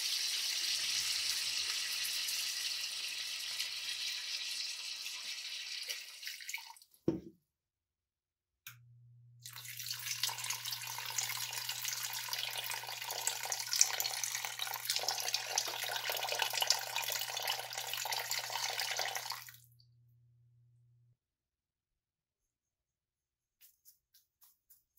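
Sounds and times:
liquid pouring into a pot: 0:00.0 - 0:07.0, 0:09.4 - 0:19.6.

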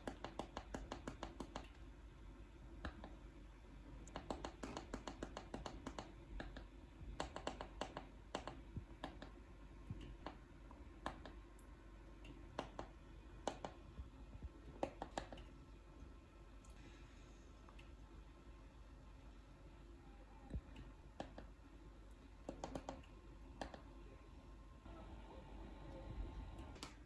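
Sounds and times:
remote control buttons clicking: 0:12.2 - 0:13.8, 0:14.8 - 0:15.6.

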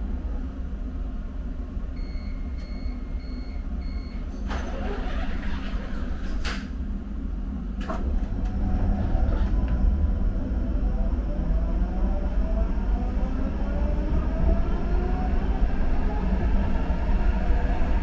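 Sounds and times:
steady low rumble: 0:05.9 - 0:18.0.

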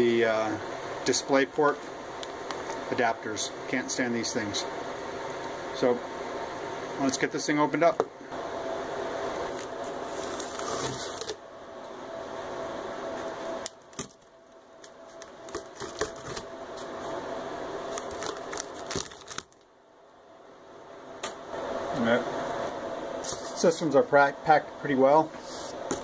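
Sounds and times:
cardboard box rustling: 0:15.1 - 0:16.5.

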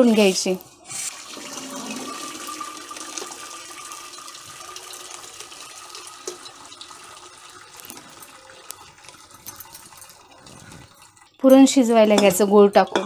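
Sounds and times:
wet food pouring into a steel pot: 0:01.1 - 0:11.1.

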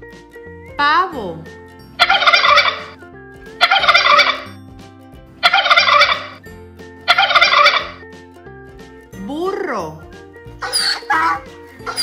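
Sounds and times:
turkeys gobbling: 0:02.0 - 0:03.0, 0:03.6 - 0:04.5, 0:05.4 - 0:06.4, 0:07.1 - 0:08.0, 0:10.6 - 0:12.0.

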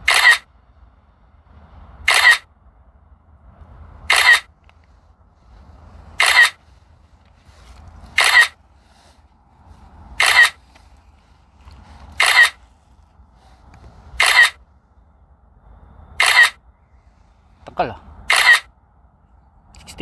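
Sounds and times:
camera shutter clicks: 0:00.0 - 0:00.5, 0:02.1 - 0:02.4, 0:04.1 - 0:04.5, 0:06.2 - 0:06.6, 0:08.2 - 0:08.6, 0:10.2 - 0:10.9, 0:12.1 - 0:12.6, 0:14.2 - 0:14.6, 0:16.2 - 0:16.6, 0:18.3 - 0:18.7.

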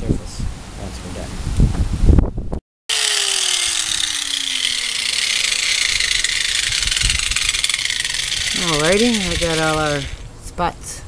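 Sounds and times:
power tool abrading metal: 0:02.9 - 0:10.3.

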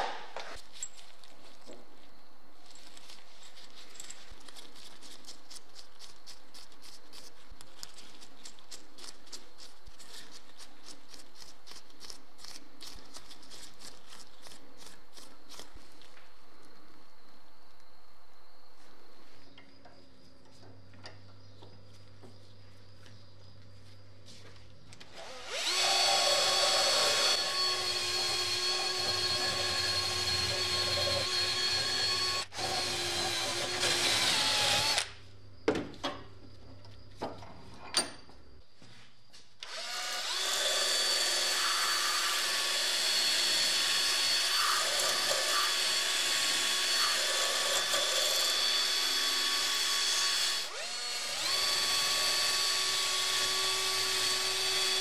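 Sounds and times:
wire wheel power tool whining: 0:25.0 - 0:35.2, 0:39.6 - 0:55.0.

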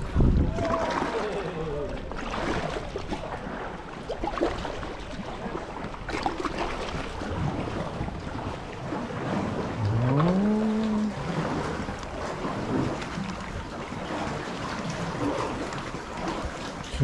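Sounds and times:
wind buffeting microphone: 0:00.0 - 0:03.8
light knocks and splashes: 0:00.0 - 0:17.0
water sloshing around boat: 0:00.0 - 0:17.0.

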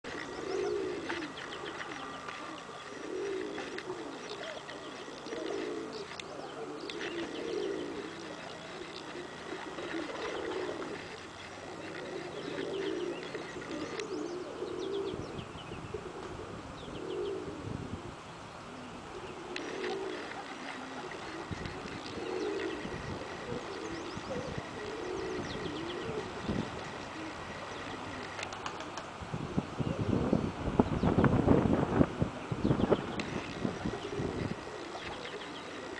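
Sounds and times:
pigeons cooing: 0:00.0 - 0:35.9.

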